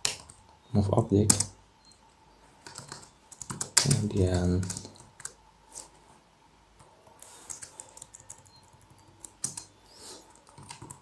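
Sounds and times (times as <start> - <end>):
typing on a computer keyboard: 2.6 - 5.4, 7.4 - 11.0.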